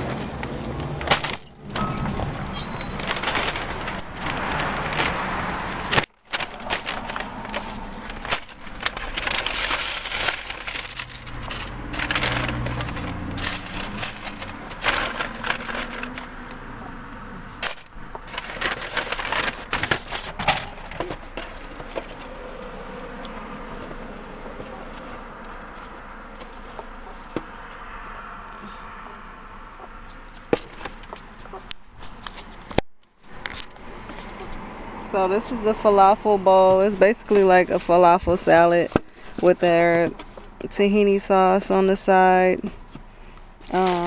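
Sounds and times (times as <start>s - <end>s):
paper bag rustling: 0.0s - 16.5s, 17.5s - 22.3s, 43.7s - 44.0s.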